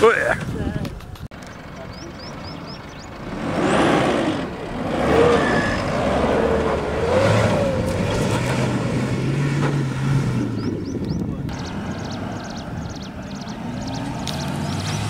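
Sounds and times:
tyres churning loose soil: 1.4s - 10.6s
diesel engine revving: 1.4s - 15.0s.

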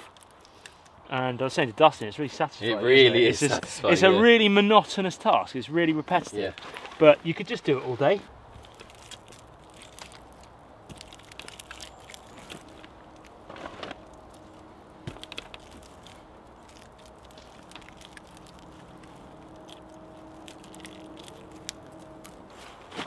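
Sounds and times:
wet clay squishing by hand: 6.6s - 23.0s.

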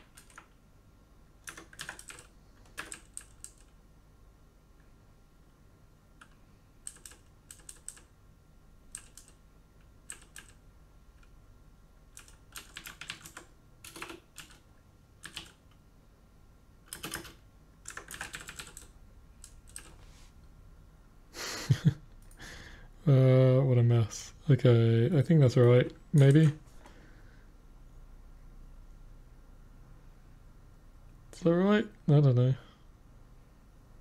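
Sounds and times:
keyboard typing: 0.0s - 0.6s, 1.4s - 3.8s, 6.2s - 8.1s, 8.9s - 9.4s, 10.0s - 10.6s, 12.1s - 15.7s, 16.9s - 20.0s.

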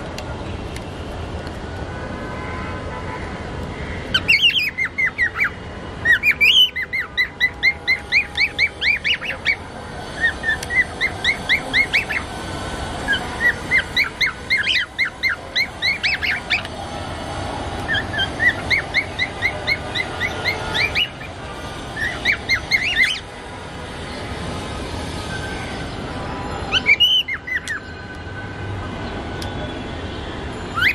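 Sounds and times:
cockatiels chirping: 4.2s - 9.6s, 10.2s - 12.3s, 13.1s - 16.7s, 17.9s - 21.2s, 22.0s - 23.2s.

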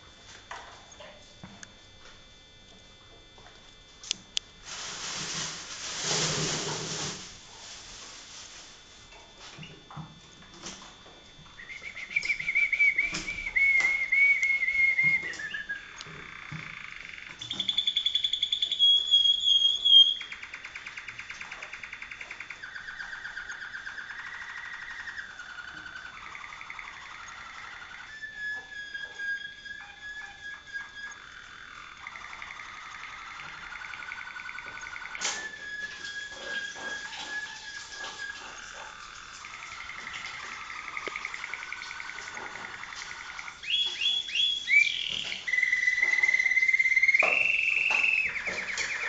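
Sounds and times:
canary singing trills: 11.6s - 49.0s.

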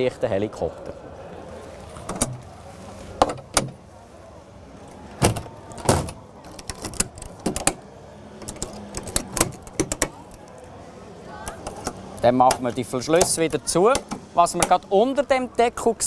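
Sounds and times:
latches snapping shut: 5.2s - 7.8s, 8.4s - 10.4s.

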